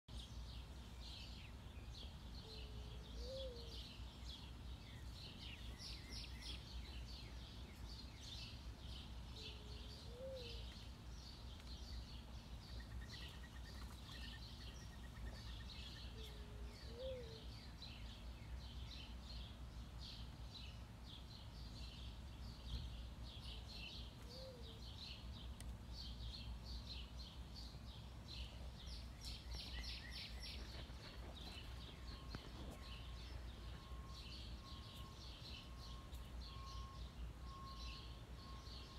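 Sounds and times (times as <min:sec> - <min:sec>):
dove cooing: 0:02.5 - 0:03.7, 0:09.4 - 0:10.7, 0:16.1 - 0:17.5.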